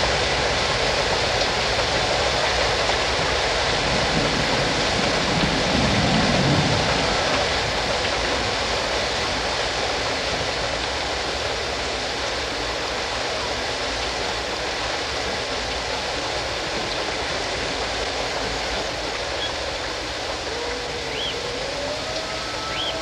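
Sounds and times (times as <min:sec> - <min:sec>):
jungle rushing noise: 0:16.3 - 0:23.0.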